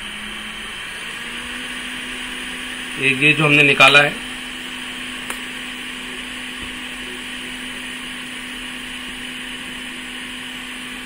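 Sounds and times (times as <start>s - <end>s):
small electric motor humming: 0.0s - 11.0s.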